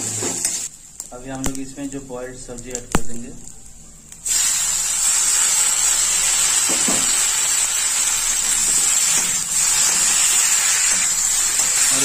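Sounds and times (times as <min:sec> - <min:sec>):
vegetables sizzling in hot oil: 0:00.0 - 0:01.1, 0:04.0 - 0:12.0
spatula stirring in a pan: 0:06.4 - 0:12.0.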